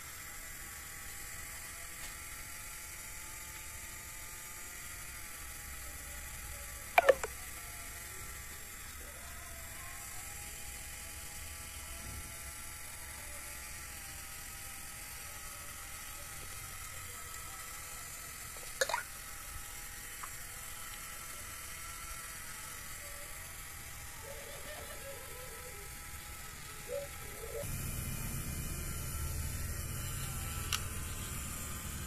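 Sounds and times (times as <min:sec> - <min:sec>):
small motor whirring: 0:00.0 - 0:32.0
sharp click: 0:07.0 - 0:07.3.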